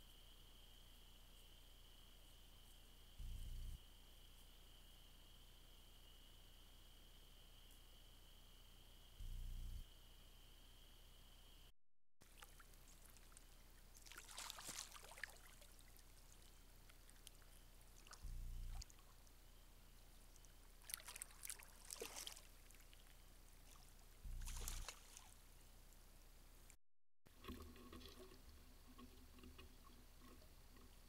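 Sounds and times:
ducks splashing in water: 12.2 - 19.3, 20.3 - 25.4.

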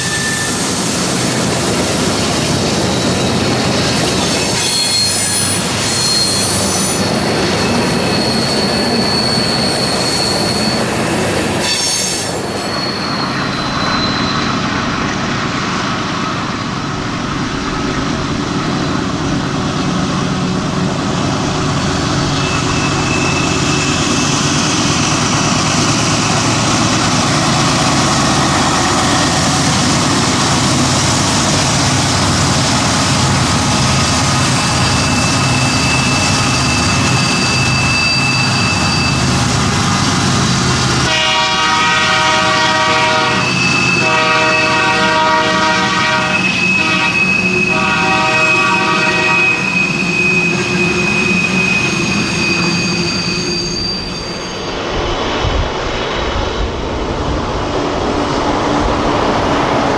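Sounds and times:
train wheels squealing: 0.0 - 15.2, 21.0 - 41.0, 43.1 - 44.9, 46.2 - 56.2
diesel locomotive rumble: 0.0 - 59.9.

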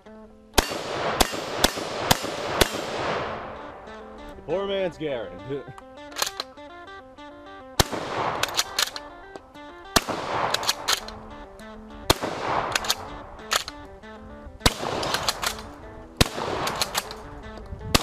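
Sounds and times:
background music with held notes: 0.0 - 18.0
shotgun shots echoing: 0.6 - 4.4, 7.6 - 18.0
shotgun bolt clicks: 5.7 - 6.7, 7.8 - 18.0.

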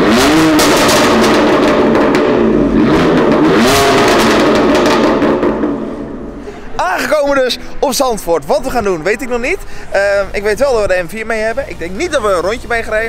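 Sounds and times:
exhaust pops and bangs: 0.0 - 6.2
car engine revving: 0.0 - 10.5.

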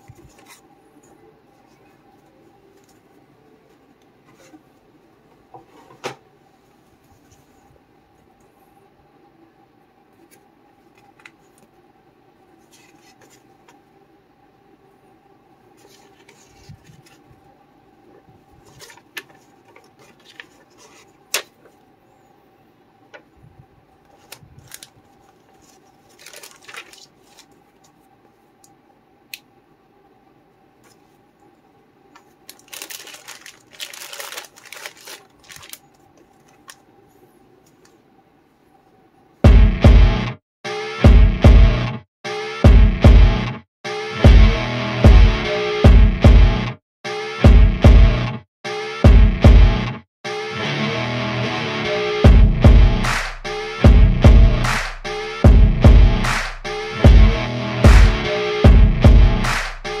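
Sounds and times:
plastic and cardboard crinkling: 0.0 - 0.7, 15.8 - 17.4, 18.6 - 21.8, 24.1 - 28.0, 32.2 - 36.8
faint steady hum: 0.0 - 39.5.

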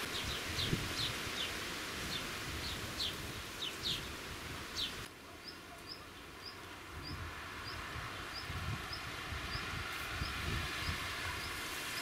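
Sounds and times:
background hiss: 0.0 - 12.0
high falling bird chirps: 0.0 - 12.0.

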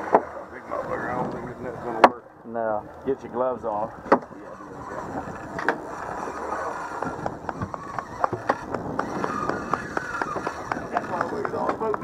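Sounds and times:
wind noise: 0.0 - 2.2, 2.8 - 12.0
knocks against hull: 4.0 - 4.3, 7.0 - 12.0.

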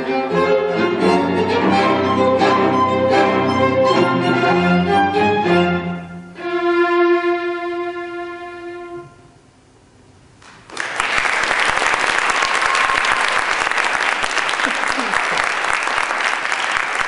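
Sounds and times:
string quartet holding bowed note: 0.0 - 9.3
audience applause: 10.4 - 17.0.

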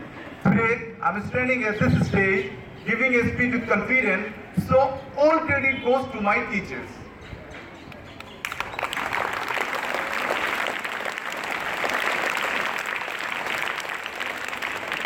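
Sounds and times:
crowd applauding: 8.4 - 15.0.

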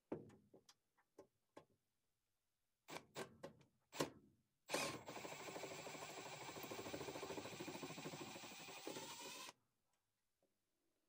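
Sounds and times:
cordless screwdriver running: 5.1 - 9.5.

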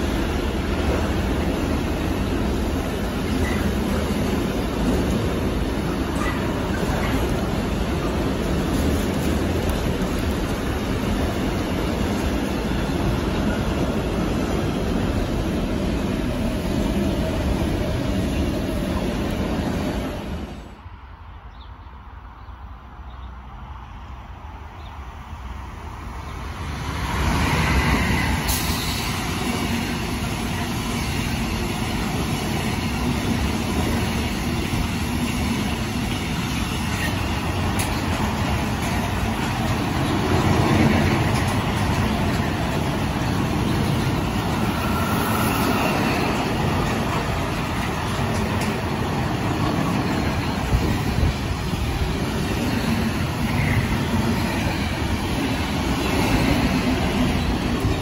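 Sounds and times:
train wheels running on rails: 0.0 - 20.8, 24.6 - 58.0
freight train passing: 0.0 - 58.0.

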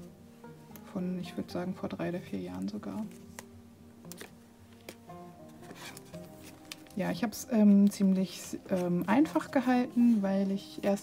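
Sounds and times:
quiet background music: 0.0 - 11.0
album page turning clicks: 2.5 - 3.5, 4.1 - 5.0, 5.7 - 7.0.

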